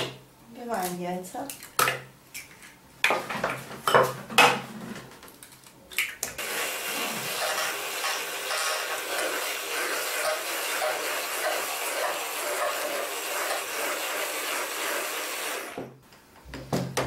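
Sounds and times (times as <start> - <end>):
immersion blender whirring: 6.4 - 15.9.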